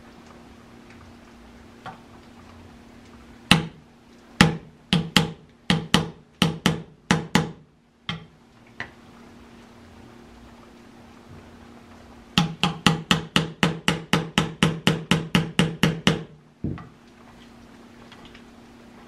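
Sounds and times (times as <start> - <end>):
hammer knocking on metal: 4.4 - 8.3, 12.4 - 16.8.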